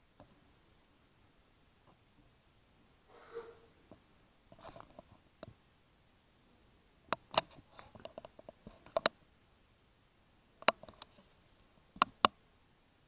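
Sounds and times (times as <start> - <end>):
faint ticks: 7.1 - 9.2, 10.6 - 12.4
sharp clicks: 7.1 - 9.2.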